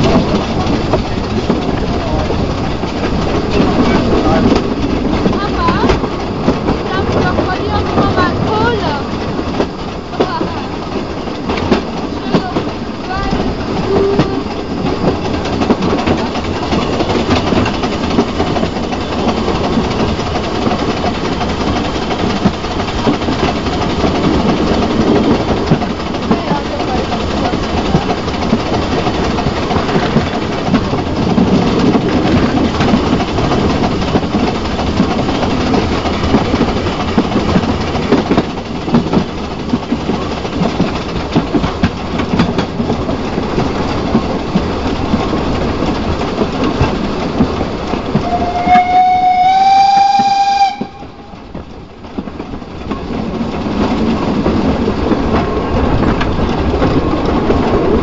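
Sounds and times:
steam locomotive clattering: 0.0 - 58.0
steam whistle: 48.2 - 51.4.

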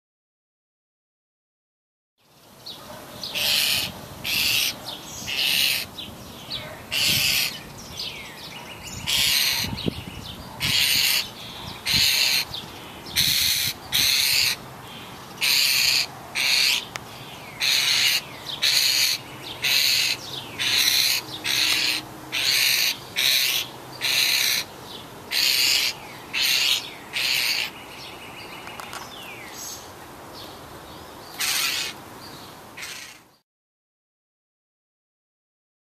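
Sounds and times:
starling fledgling begging calls: 3.2 - 29.9, 31.3 - 32.0, 32.8 - 33.4.

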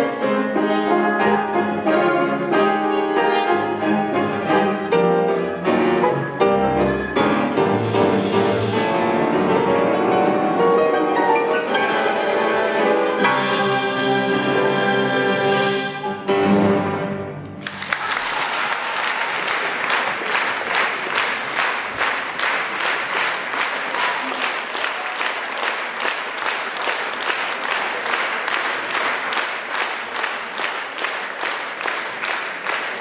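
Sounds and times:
audience clapping: 17.4 - 33.0.

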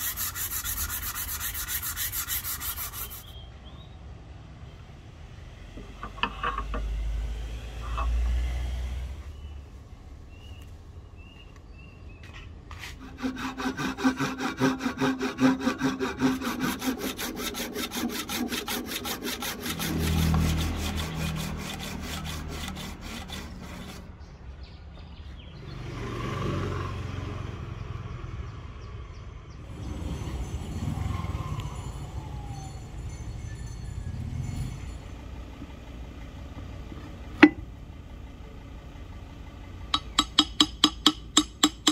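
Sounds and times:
handsaw cutting wood: 0.0 - 3.4, 12.8 - 24.1.

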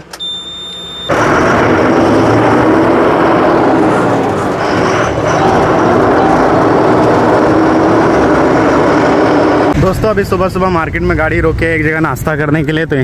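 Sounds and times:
truck engine and road noise: 0.0 - 13.0
high steady beep: 0.2 - 1.1.

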